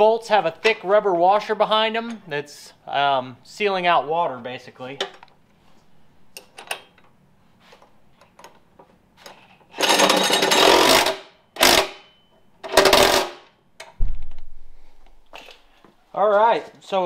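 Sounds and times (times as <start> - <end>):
impact driver hammering: 9.9 - 13.5
dull thump: 14.0 - 14.7.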